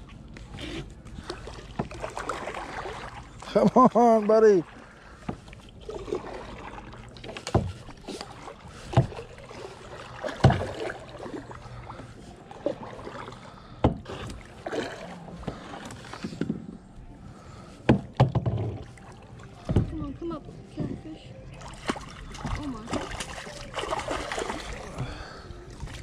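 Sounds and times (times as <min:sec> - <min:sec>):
knocks and thumps on kayak hull: 0:07.4 - 0:07.9, 0:08.9 - 0:09.3, 0:10.4 - 0:10.9, 0:13.8 - 0:14.4, 0:17.8 - 0:18.9, 0:19.6 - 0:20.0.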